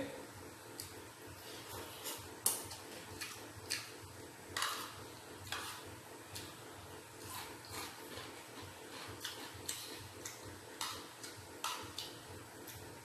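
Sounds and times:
person chewing food: 0:00.8 - 0:04.0, 0:07.2 - 0:12.8.

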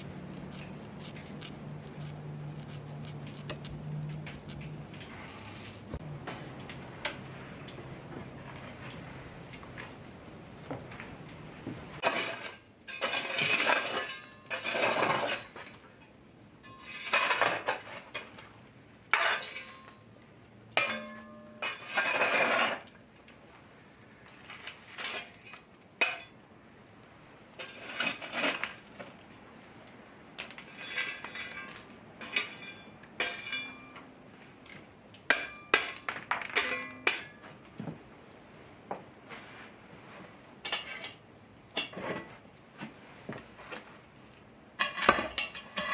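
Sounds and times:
iron shovel scraping stone hearth: 0:00.0 - 0:06.0, 0:12.0 - 0:15.9, 0:16.6 - 0:18.4, 0:19.1 - 0:19.9, 0:20.8 - 0:23.0, 0:24.3 - 0:26.4, 0:27.5 - 0:28.9, 0:30.4 - 0:34.1, 0:35.3 - 0:37.6, 0:40.6 - 0:42.6, 0:44.8 - 0:45.9
metallic clinks of iron cookware: 0:16.6 - 0:17.4, 0:20.8 - 0:22.1, 0:31.0 - 0:34.1, 0:35.3 - 0:37.4.

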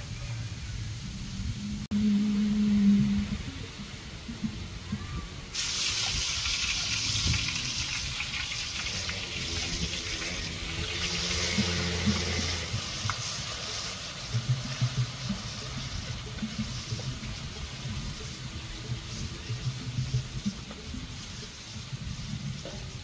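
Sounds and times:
food sizzling in a wok: 0:04.8 - 0:23.0.

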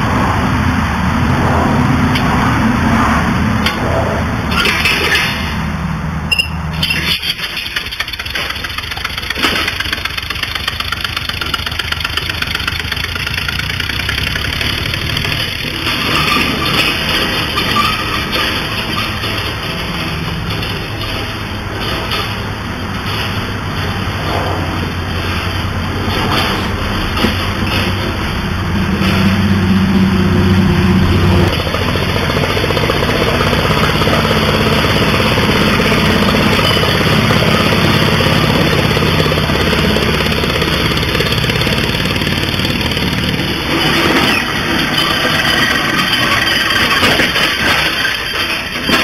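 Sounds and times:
compressed-air engine running: 0:29.8 - 0:44.9.

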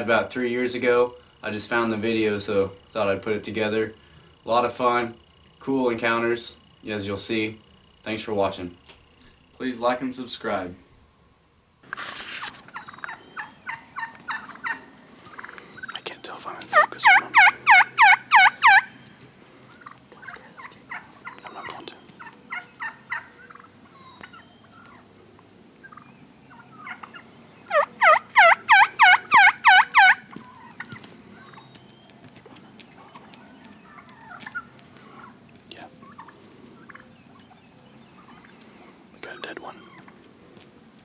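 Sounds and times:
turkey yelping: 0:12.6 - 0:16.0, 0:16.6 - 0:25.1, 0:25.8 - 0:35.4, 0:36.0 - 0:38.6, 0:39.7 - 0:40.3.

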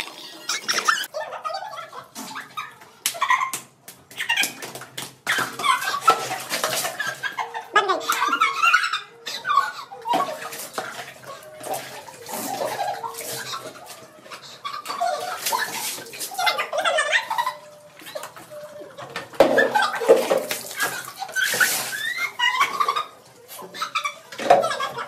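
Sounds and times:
water splashing on concrete floor: 0:02.8 - 0:07.4, 0:10.1 - 0:25.0.

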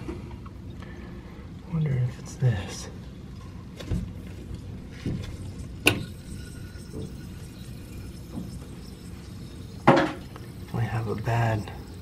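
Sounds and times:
water trickling in toilet tank: 0:05.2 - 0:12.0.

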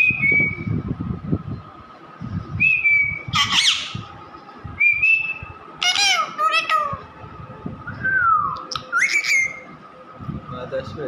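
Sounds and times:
parakeet whistled notes: 0:02.6 - 0:04.0, 0:08.1 - 0:09.7
parakeet squawking: 0:03.3 - 0:04.1, 0:05.8 - 0:07.0, 0:09.0 - 0:09.6.

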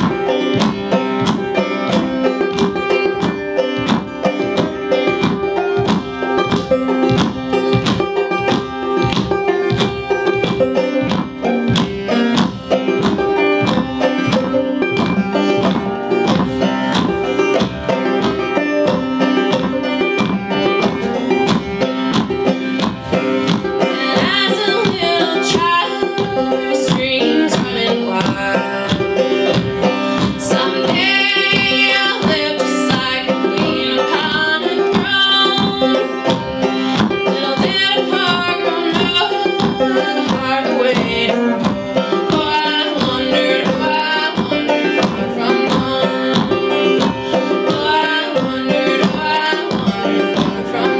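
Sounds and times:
acoustic string band playing: 0:00.0 - 0:50.9
women singing: 0:23.9 - 0:29.1, 0:30.4 - 0:36.1, 0:37.3 - 0:50.9.

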